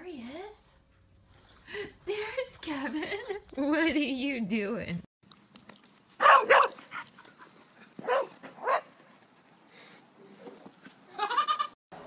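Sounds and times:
dog barking: 6.2s - 6.8s, 8.0s - 8.9s.

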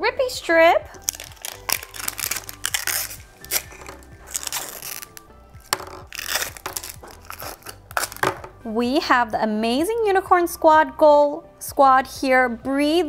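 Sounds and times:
background music: 0.0s - 13.0s
plastic wrap crinkling and tearing: 0.9s - 8.5s.

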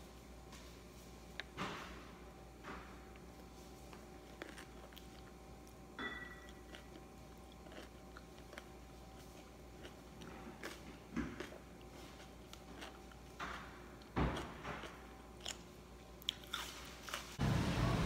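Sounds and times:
biting and chewing spring roll: 3.2s - 17.4s.

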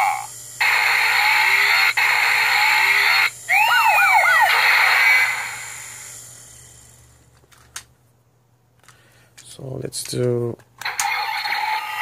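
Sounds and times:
siren wails: 0.6s - 5.9s, 10.9s - 12.0s.

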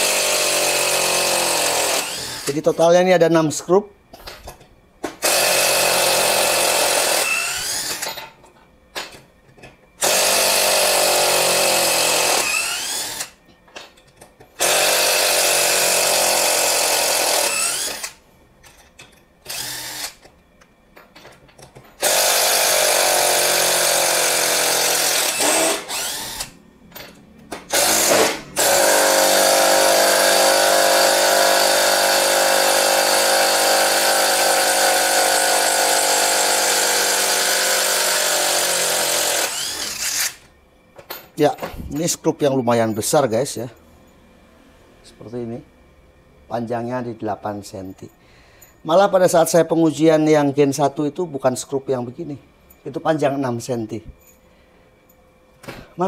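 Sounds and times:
cordless impact driver running: 0.0s - 2.5s, 5.2s - 8.0s, 10.0s - 13.3s, 14.6s - 18.2s, 22.0s - 26.5s, 27.7s - 40.4s.

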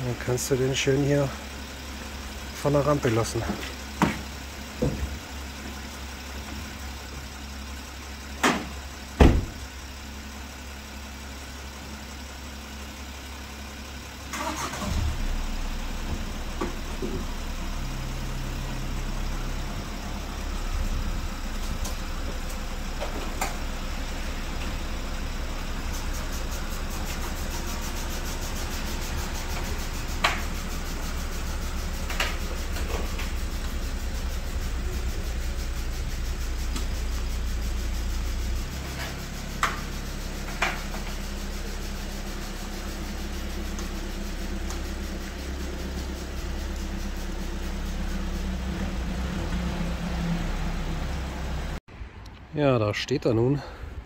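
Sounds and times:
diesel engine idling: 0.0s - 52.2s.

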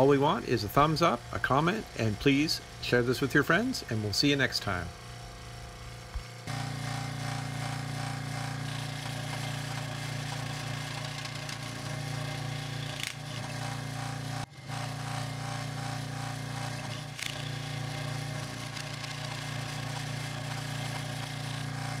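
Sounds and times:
scroll saw cutting plywood: 6.1s - 22.0s.

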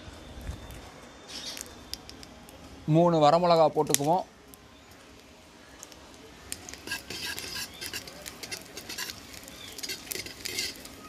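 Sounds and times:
spices frying in oil: 3.2s - 11.0s
ladle scraping an iron pan: 6.7s - 11.0s.

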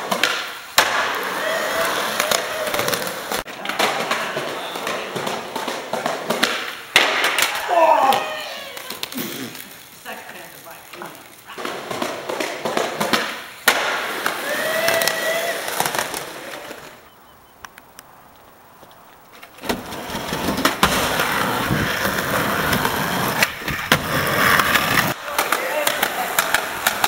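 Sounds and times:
skateboard clacking on ground: 0.0s - 27.0s
skateboard wheels rolling on concrete: 0.0s - 27.0s.

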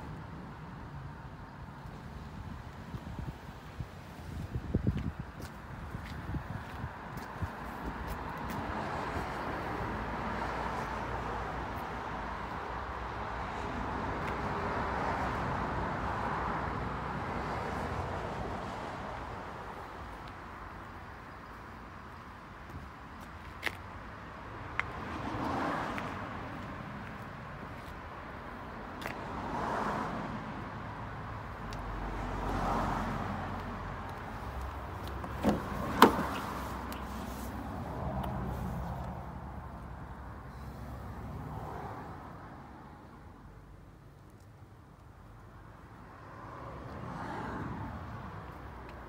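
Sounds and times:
car door latch clicks: 35.2s - 36.4s.

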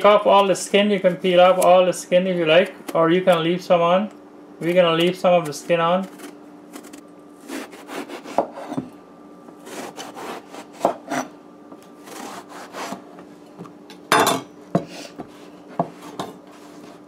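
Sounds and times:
knife slicing eggplant: 5.0s - 8.7s, 9.6s - 11.3s, 12.0s - 13.0s.

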